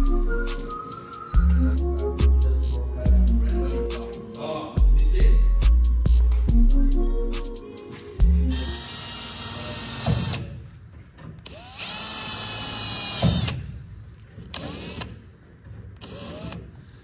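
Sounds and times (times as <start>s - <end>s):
cordless drill whining: 11.4s - 13.6s, 16.0s - 16.8s.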